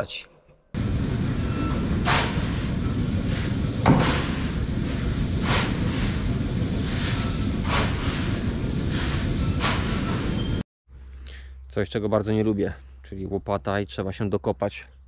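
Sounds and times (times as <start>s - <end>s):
steady low rumble: 0.8s - 9.4s.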